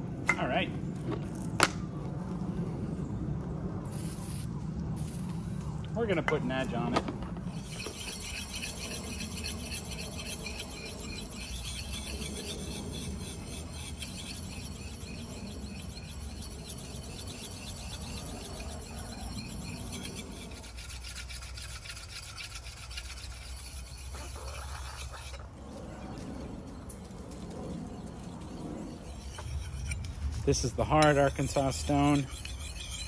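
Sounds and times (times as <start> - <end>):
sharpening stone scraping axe blade: 7.5 - 25.4, 28.9 - 33.0.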